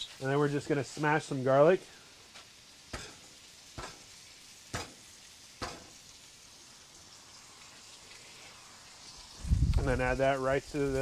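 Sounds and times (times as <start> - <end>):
faint steady hiss: 0.0 - 11.0
garlic smashed on wooden board: 4.7 - 5.0, 5.6 - 5.9.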